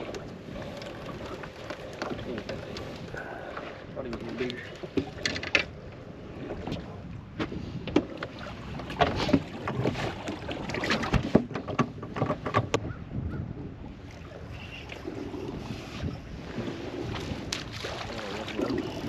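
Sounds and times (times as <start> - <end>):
water against hull: 0.0 - 19.0
wind on microphone: 6.1 - 19.0.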